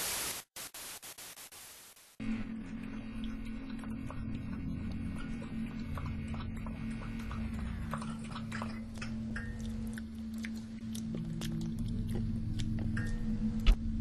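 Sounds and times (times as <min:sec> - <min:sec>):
low electrical hum: 0:02.2 - 0:14.0
animal eating from a bowl: 0:02.6 - 0:13.8.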